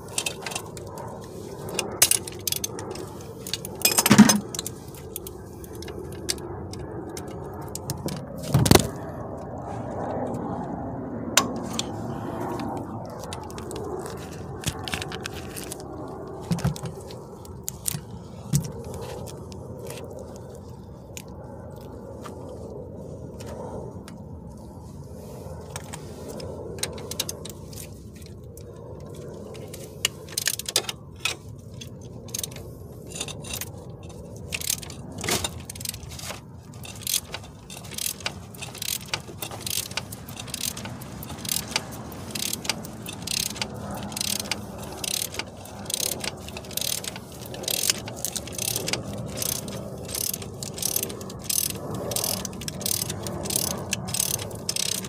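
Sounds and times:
socket ratchet clicking: 34.5 - 55.0.

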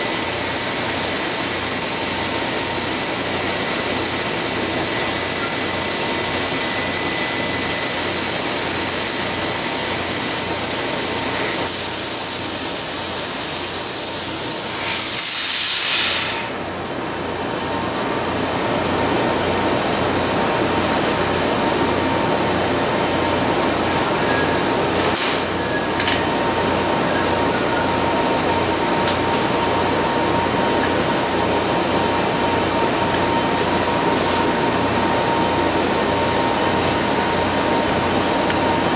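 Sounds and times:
laser cutter hissing: 0.0 - 16.7.

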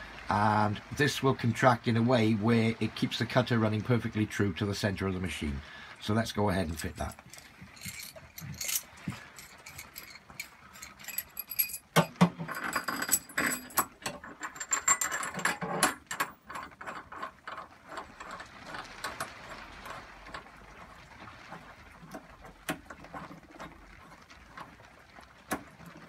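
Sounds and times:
metal rod clinking and rattling: 6.8 - 18.4.

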